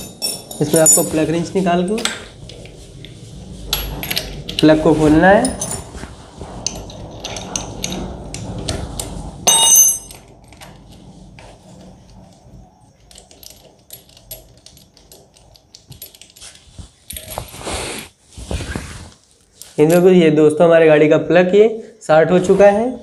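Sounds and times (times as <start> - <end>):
ringing metal clink: 9.5 - 10.2.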